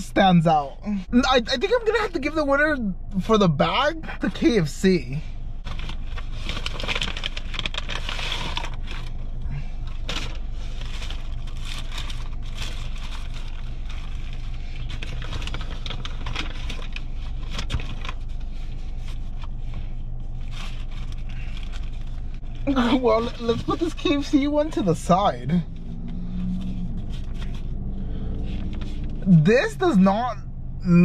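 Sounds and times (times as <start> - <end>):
steady low hum: 0.0 - 31.0
paper wrappers crinkling: 5.6 - 9.2, 9.8 - 24.9, 25.6 - 29.2.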